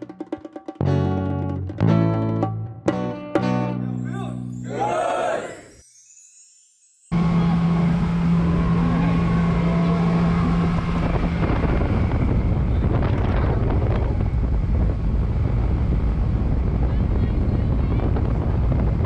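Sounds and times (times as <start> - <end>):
motorboat engine drone: 7.1 - 19.0
steady low hum: 7.2 - 19.0
wind buffeting microphone: 7.6 - 19.0.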